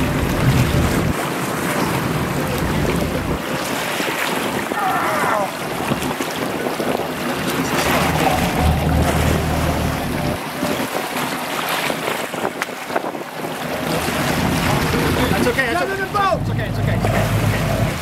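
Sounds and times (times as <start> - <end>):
low hum: 0.0 - 1.4, 7.9 - 10.4
boat engine running: 0.0 - 18.0
water rushing along boat hull: 0.0 - 18.0
wind buffeting microphone: 0.0 - 18.0.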